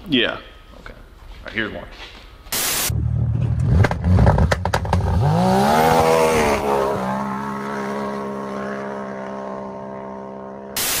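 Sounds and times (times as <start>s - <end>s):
engine accelerating hard: 2.9s - 10.8s.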